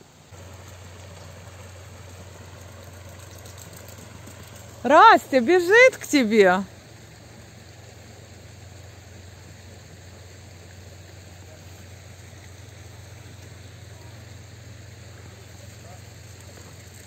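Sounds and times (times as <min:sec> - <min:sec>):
faint hiss: 0:00.0 - 0:17.0
low hum: 0:00.0 - 0:17.0.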